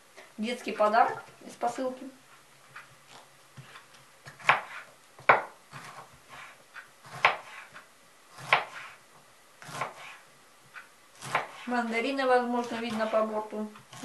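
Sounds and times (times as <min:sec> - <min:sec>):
knife chopping on wooden board: 0:03.6 - 0:07.8, 0:08.4 - 0:09.0, 0:09.6 - 0:10.2, 0:11.2 - 0:11.7.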